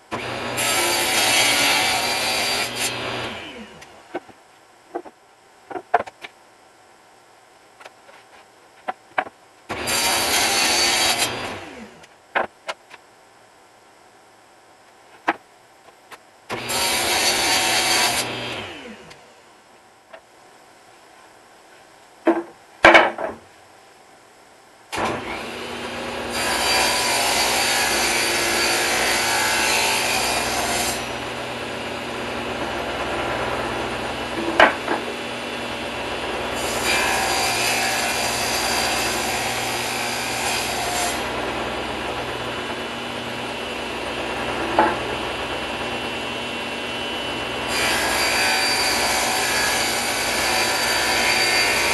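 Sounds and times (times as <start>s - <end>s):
table saw running: 0.1s - 3.7s, 25.0s - 51.9s
saw cutting wood: 0.1s - 3.8s, 9.7s - 12.0s, 16.5s - 19.0s, 24.9s - 51.9s
wooden board knocks: 22.3s - 23.5s.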